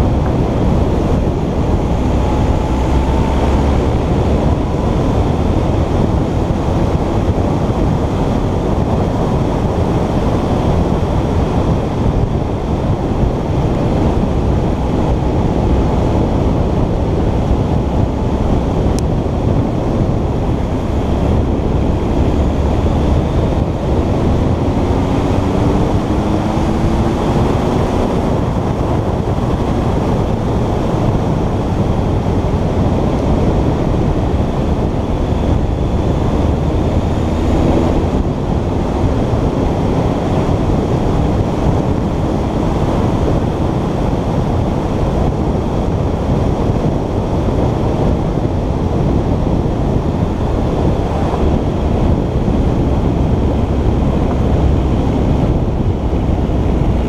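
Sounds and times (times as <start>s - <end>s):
motorcycle engine running: 0.0s - 57.0s
wind rush on microphone: 0.0s - 57.0s.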